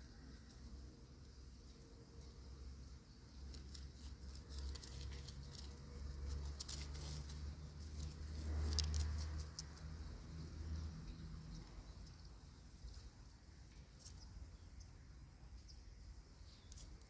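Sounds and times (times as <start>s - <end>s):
paws rustling in dry leaves: 3.6s - 9.6s.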